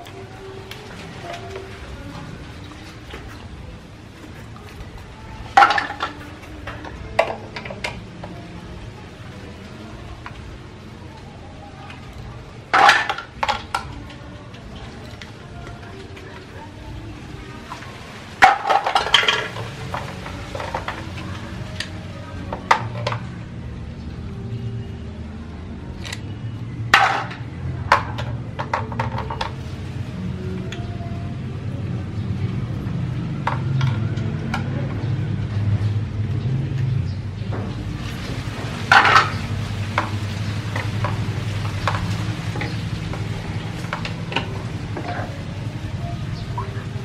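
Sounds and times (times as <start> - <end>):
plastic toys clattering in basin: 4.2 - 8.3, 11.9 - 16.8, 17.6 - 23.3, 26.9 - 29.9, 37.7 - 47.0.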